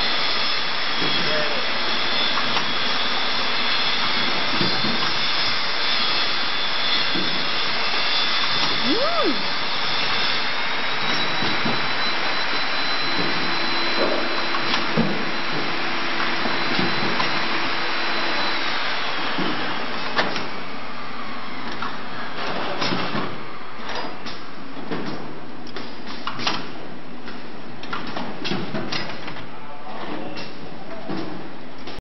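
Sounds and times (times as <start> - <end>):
machine hiss and whine: 0.0 - 23.9
pneumatic mechanism clicks and knocks: 23.9 - 29.4.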